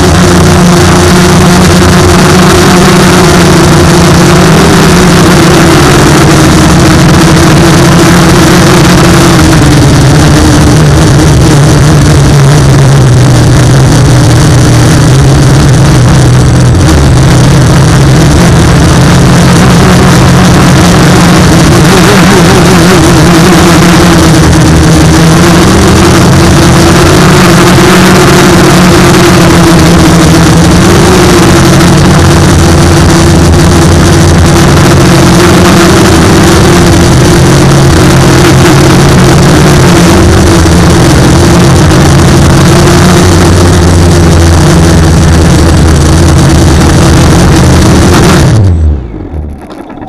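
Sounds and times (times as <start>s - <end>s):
drone propellers buzzing: 0.0s - 50.0s.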